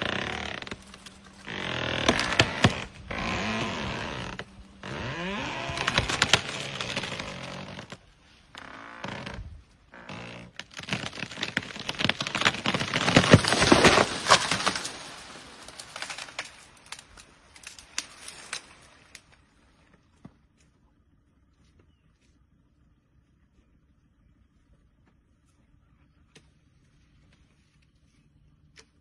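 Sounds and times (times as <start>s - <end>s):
tree cracking and splintering: 0.0s - 19.5s.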